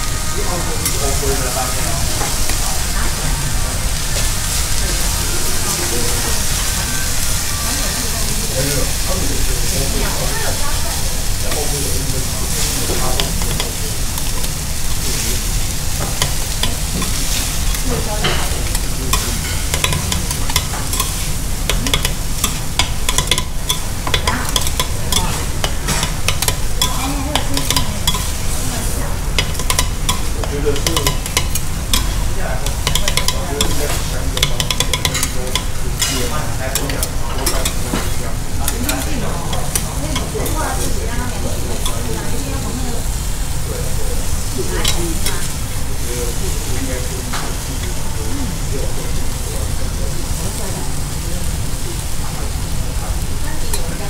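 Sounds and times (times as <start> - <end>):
batter sizzling on a griddle: 0.0 - 54.0
steady low hum: 0.0 - 54.0.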